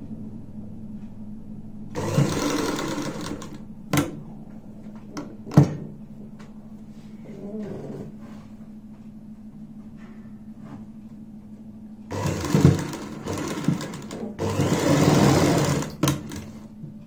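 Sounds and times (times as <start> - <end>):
steady low hum: 0.0 - 17.0
sewing machine stitching: 2.0 - 4.1, 12.1 - 16.6.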